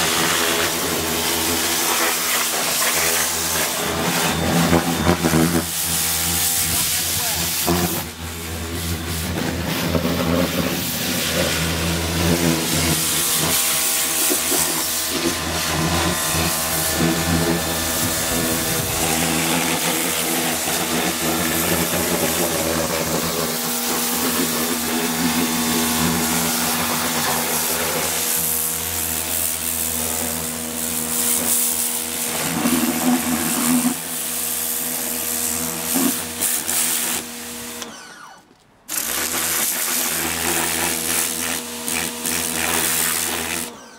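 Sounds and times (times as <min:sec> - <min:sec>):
high-pressure water jet hissing: 0:00.0 - 0:37.8, 0:38.9 - 0:43.8
pressure washer motor hum: 0:00.0 - 0:43.9.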